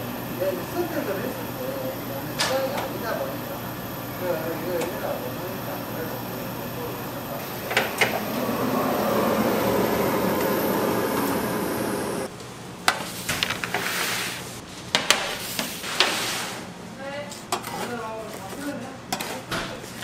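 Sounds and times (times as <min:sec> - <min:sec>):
machine hum: 0:00.0 - 0:12.3.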